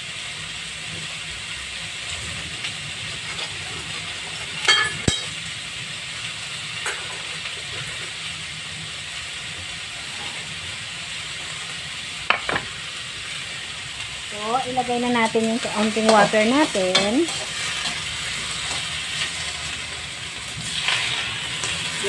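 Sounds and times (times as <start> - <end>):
vegetables sizzling in a wok: 0.0 - 22.0.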